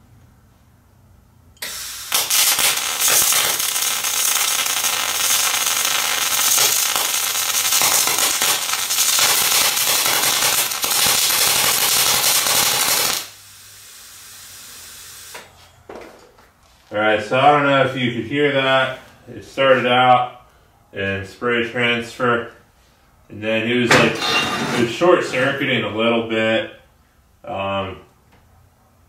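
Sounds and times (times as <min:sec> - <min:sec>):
welding arc crackling hiss: 0:01.6 - 0:15.6.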